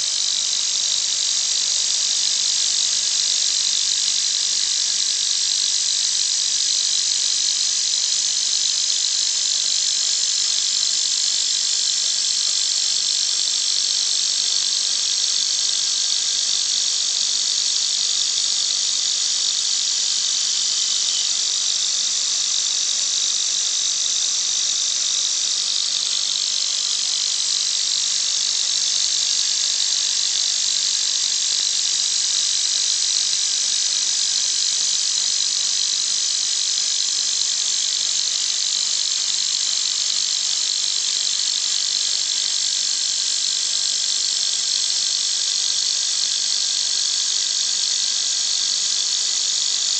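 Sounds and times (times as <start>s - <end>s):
spindle high-pitched whine: 19.5s - 29.9s.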